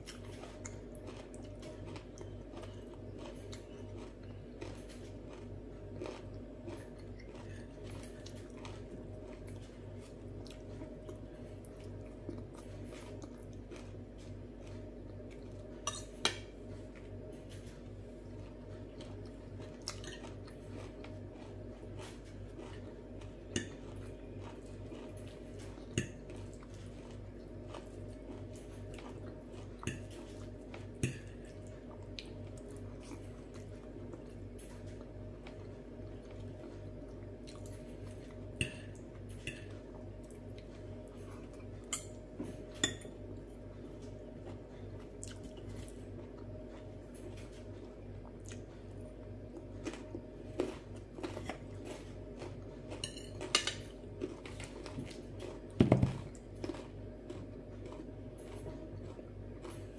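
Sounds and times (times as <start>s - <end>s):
soft chewing: 0.0s - 59.9s
steady low hum: 0.0s - 59.9s
cutlery clinking on glass plate: 53.0s - 53.9s.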